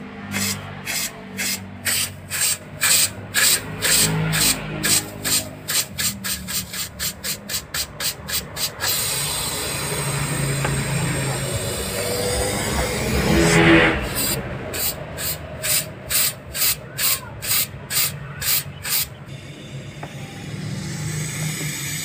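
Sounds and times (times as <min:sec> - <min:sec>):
gas hissing in spurts: 0:00.3 - 0:22.0
compressor low hum: 0:08.6 - 0:16.2, 0:17.8 - 0:22.0.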